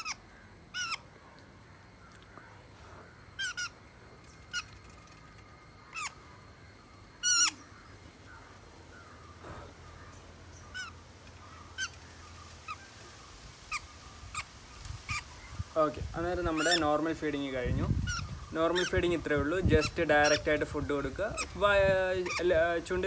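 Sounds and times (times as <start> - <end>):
parrot chicks squawking: 0.0 - 1.1, 3.2 - 6.3, 7.2 - 7.8, 9.8 - 13.0, 13.6 - 15.6, 16.2 - 23.0.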